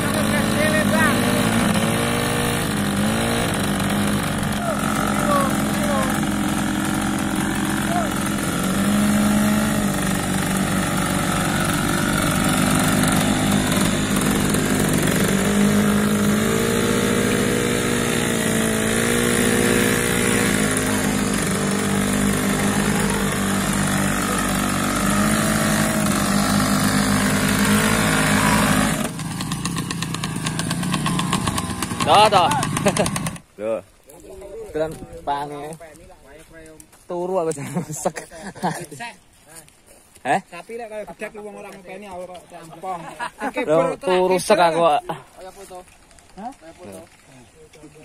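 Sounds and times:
motorcycle engine revving: 0.0 - 33.5.

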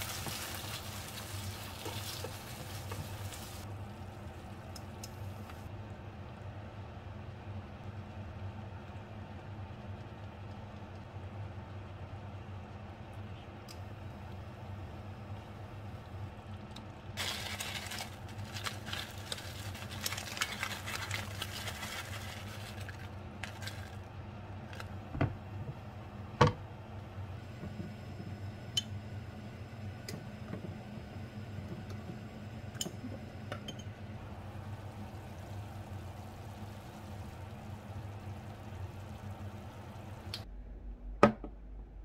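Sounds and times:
covered pan simmering: 0.0 - 5.7, 14.3 - 29.3, 34.1 - 40.4
low steady hum: 0.0 - 42.0.

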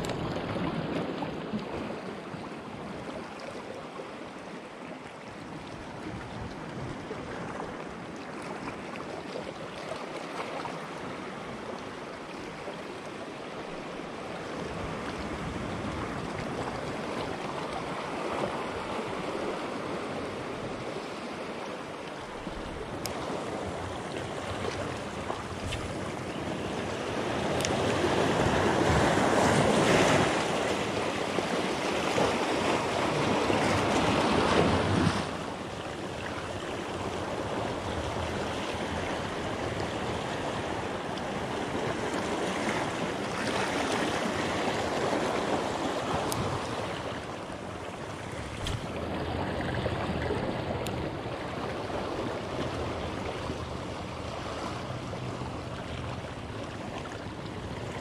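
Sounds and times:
small waves lapping over rocks: 0.0 - 58.0
wind on microphone: 22.3 - 58.0.

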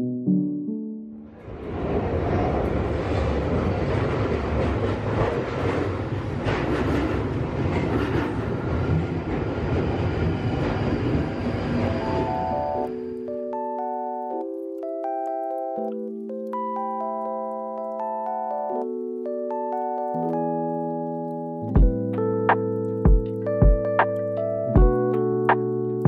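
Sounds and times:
music: 0.0 - 1.5, 11.9 - 26.0
train wheels on rails: 1.6 - 12.4.

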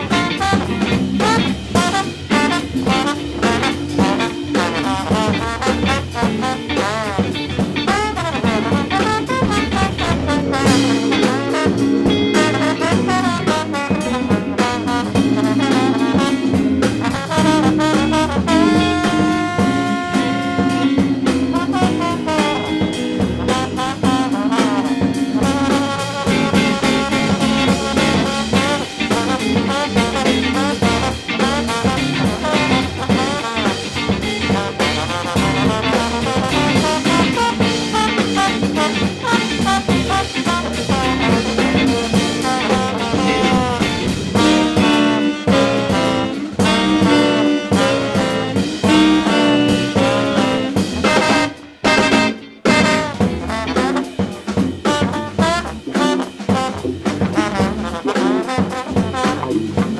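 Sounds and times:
swing jazz with brass and drums: 0.0 - 59.9.

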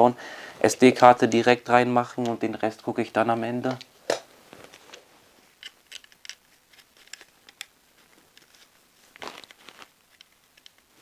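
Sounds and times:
cardboard packaging rustling: 4.4 - 10.8.

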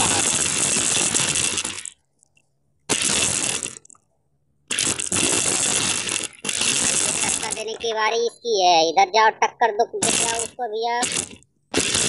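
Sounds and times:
toy car electric motor and gears: 10.0 - 12.0.

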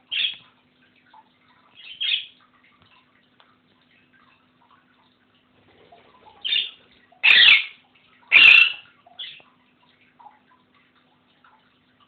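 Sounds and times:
parakeet giving harsh calls: 6.4 - 9.4.

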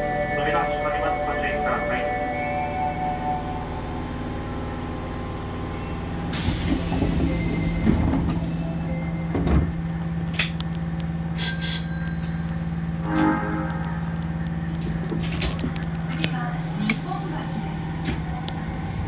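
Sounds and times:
train low hum: 0.0 - 19.0.

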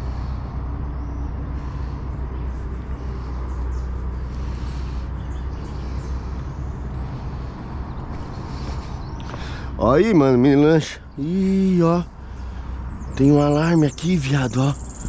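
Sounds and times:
constant low hum: 0.0 - 15.0
steady low rumble: 0.0 - 15.0
faint high bird chirps: 11.0 - 15.0.

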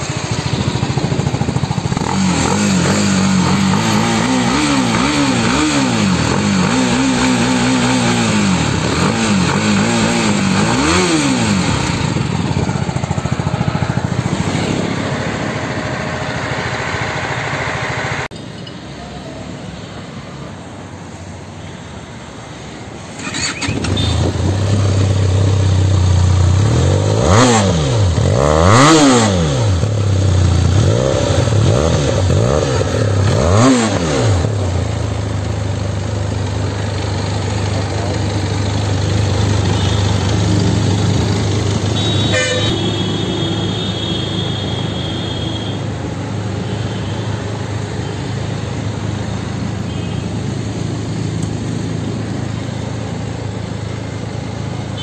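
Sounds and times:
parallel-twin motorcycle engine idling: 0.0 - 2.1, 11.7 - 18.0, 23.2 - 26.6, 34.5 - 42.4, 47.5 - 55.0
single-cylinder motorcycle engine revving: 0.0 - 18.3, 23.0 - 43.7.

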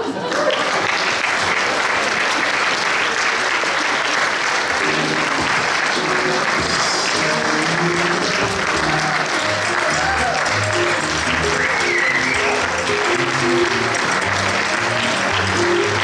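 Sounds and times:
audience applauding: 0.0 - 16.0
music: 4.8 - 16.0.

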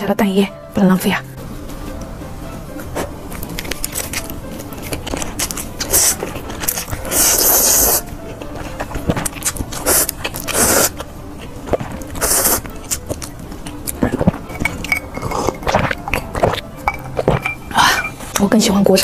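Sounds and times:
wet chewing: 3.0 - 17.8
noodles being slurped: 3.6 - 8.1, 8.7 - 11.0, 11.7 - 13.2, 13.9 - 18.0.

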